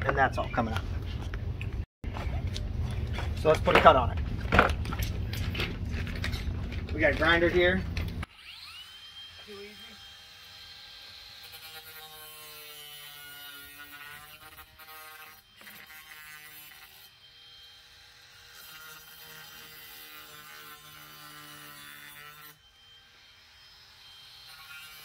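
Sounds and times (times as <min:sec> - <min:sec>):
angle grinder cutting: 0:07.1 - 0:25.0.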